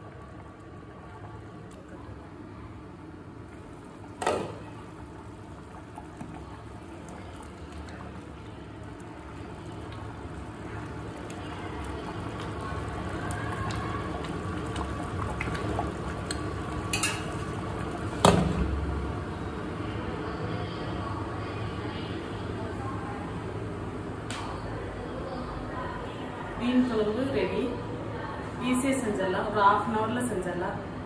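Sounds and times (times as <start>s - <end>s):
curry bubbling in a pan: 0.0s - 19.8s
ladle stirring: 10.9s - 18.2s.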